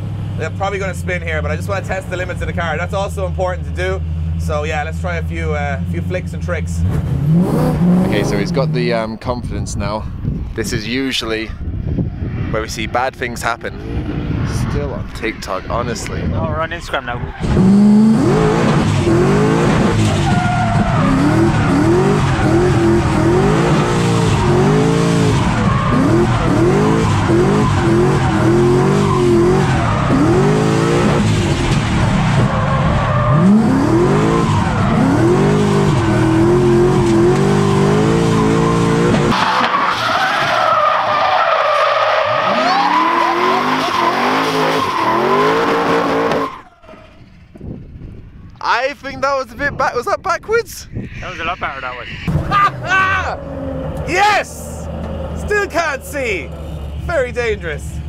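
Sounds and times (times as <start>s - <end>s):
car engine revving: 0.0s - 9.4s, 11.9s - 48.2s, 50.9s - 58.0s
tyre squeal: 37.1s - 47.4s.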